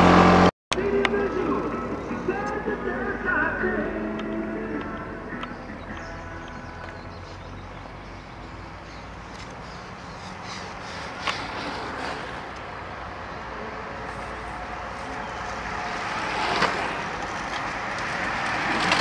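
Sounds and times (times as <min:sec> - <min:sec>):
bicycles rolling hiss: 0:07.2 - 0:19.0.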